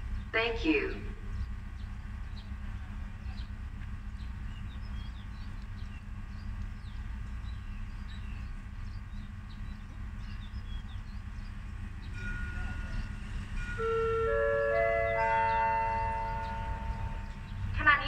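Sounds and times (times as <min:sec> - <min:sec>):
diesel railcar idling: 0:00.0 - 0:18.0
small birds chirping: 0:00.0 - 0:18.0.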